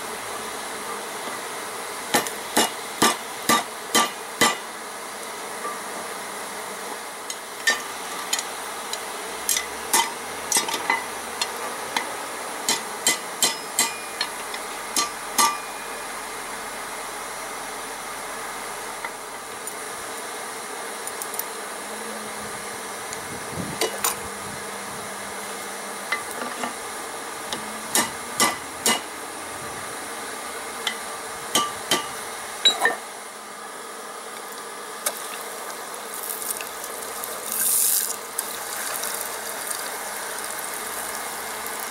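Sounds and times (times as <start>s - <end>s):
steady low hiss: 0.0s - 41.9s
hammer striking steel on anvil: 2.2s - 4.6s, 12.7s - 14.3s, 15.0s - 15.9s, 27.9s - 29.1s, 31.6s - 33.0s.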